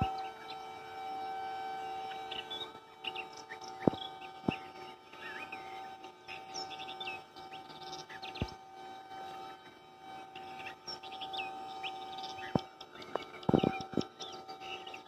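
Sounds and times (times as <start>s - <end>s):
small birds chirping: 0.0s - 0.7s, 1.8s - 8.6s, 10.2s - 15.0s
steady faint hum: 0.0s - 15.0s.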